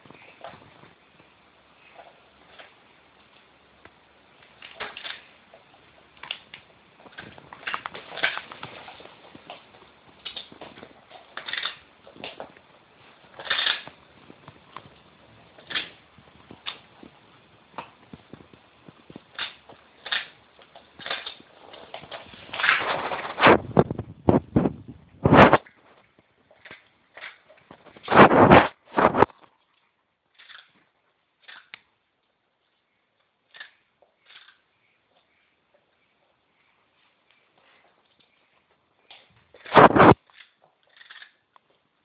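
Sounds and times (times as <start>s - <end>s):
dog scuffling with biscuit: 19.2s - 23.6s, 26.6s - 29.4s, 39.1s - 41.4s.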